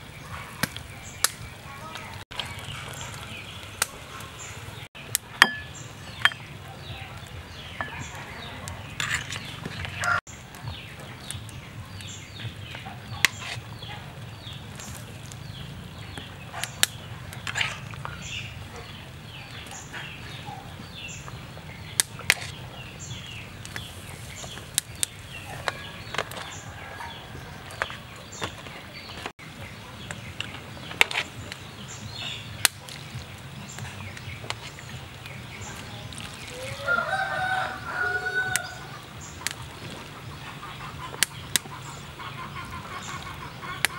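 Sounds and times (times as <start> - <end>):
birds chirping: 0.0 - 43.9
utensils clinking against a bowl: 5.4 - 6.5, 7.8 - 10.2.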